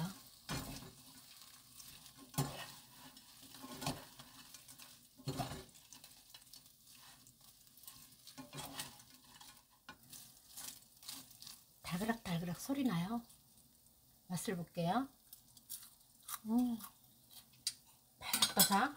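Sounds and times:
peppers rattling in frying pan: 0.0 - 18.9
spatulas clattering: 0.4 - 11.2.

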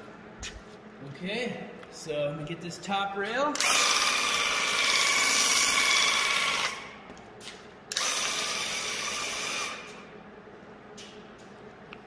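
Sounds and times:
paint sprayer pump buzzing: 3.6 - 10.0.

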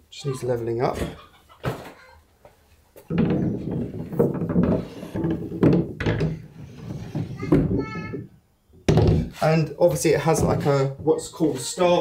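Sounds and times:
wood scraping against wood: 3.0 - 8.2, 9.1 - 11.8
sharp wooden knocks: 3.0 - 9.4.

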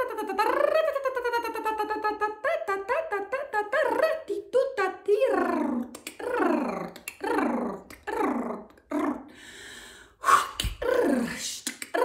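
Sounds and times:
breathy exhale: 9.3 - 10.6.

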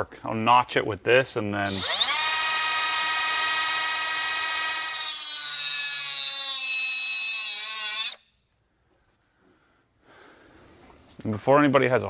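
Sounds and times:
grinder grinding steel: 1.6 - 8.2.

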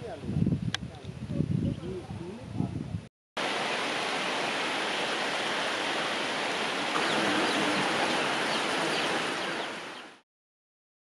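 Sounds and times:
steady rainfall: 3.4 - 10.2.

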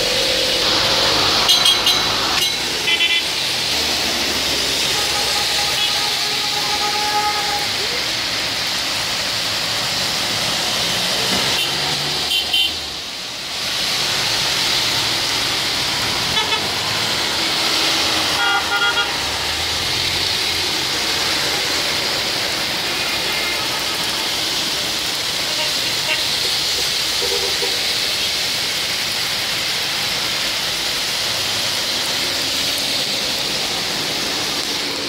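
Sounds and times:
cars hissing on wet road: 0.0 - 35.0
heavy rain pouring: 0.0 - 35.0
car horn toots: 1.5 - 3.2, 18.4 - 19.2.

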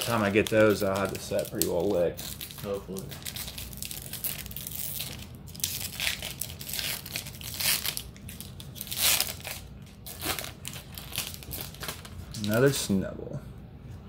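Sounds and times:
foil wrapper tearing and crinkling: 0.0 - 12.8.

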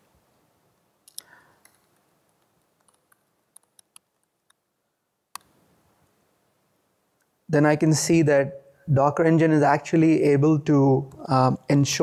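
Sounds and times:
laptop keyboard typing: 2.8 - 4.6.

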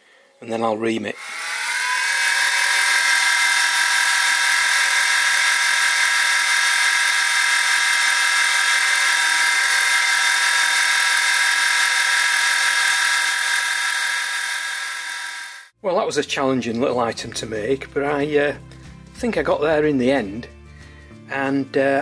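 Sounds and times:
mill spindle high whine: 1.2 - 15.7.

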